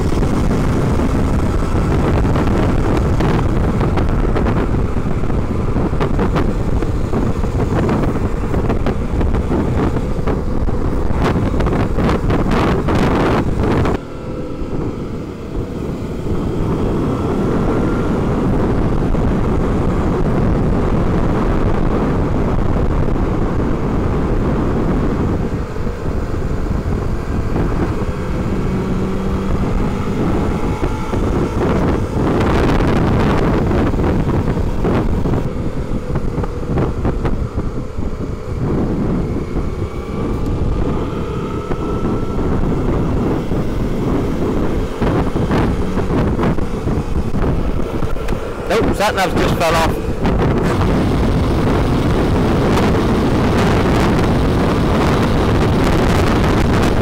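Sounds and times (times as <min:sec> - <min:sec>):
wind rushing over microphone: 0:00.0 - 0:57.0.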